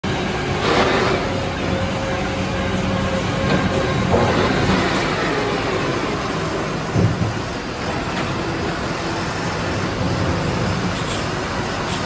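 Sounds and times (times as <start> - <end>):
diesel engine revving: 0.0 - 12.0
machinery noise: 0.0 - 12.0.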